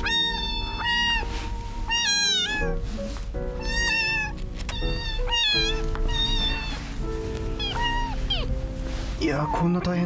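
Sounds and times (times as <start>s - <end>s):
kittens meowing: 0.0s - 2.8s, 3.6s - 8.6s
soft background music: 0.0s - 10.0s.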